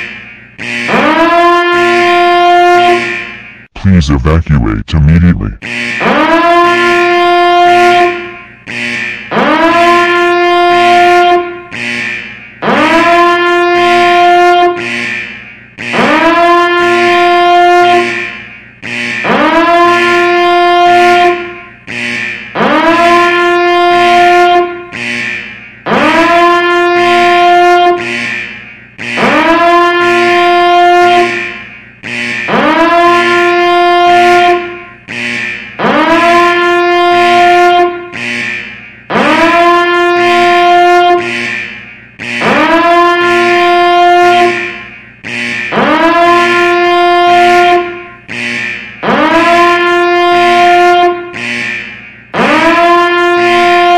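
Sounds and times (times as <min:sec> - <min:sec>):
alarm horn blasts: 0:00.6 - 0:53.9
low tones: 0:03.8 - 0:05.6.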